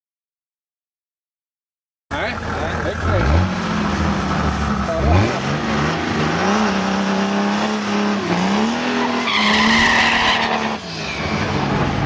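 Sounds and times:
diesel engine revving: 2.1 - 12.0
tyre squeal: 8.7 - 11.6.

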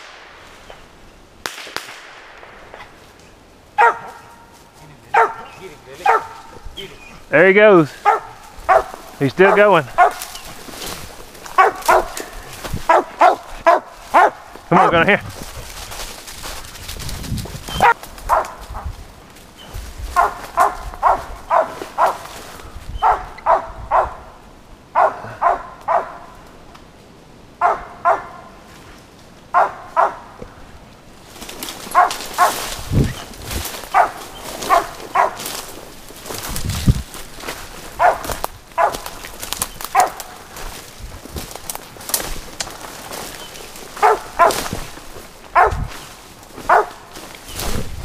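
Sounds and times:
dog barking: 3.8 - 4.5, 5.1 - 6.6, 8.0 - 10.3, 11.6 - 12.3, 12.9 - 15.0, 17.7 - 18.6, 20.2 - 22.3, 23.0 - 24.3, 25.0 - 26.3, 27.6 - 28.5, 29.5 - 30.2, 31.9 - 32.6, 33.9 - 35.4, 38.0 - 39.1, 39.9 - 40.2, 44.0 - 44.6, 45.6 - 45.9, 46.7 - 47.1.

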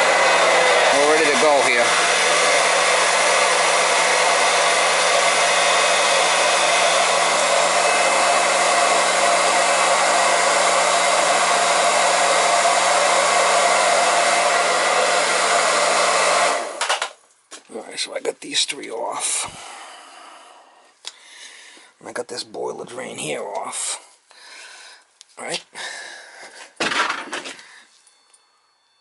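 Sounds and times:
electric transfer pump running: 0.0 - 17.1.

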